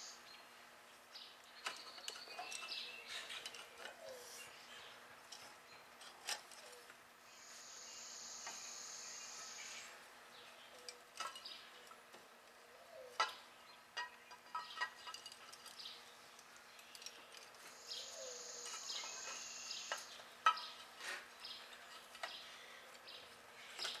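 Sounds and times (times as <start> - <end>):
cast iron parts clinking: 10.8 - 12.0, 14.0 - 16.0.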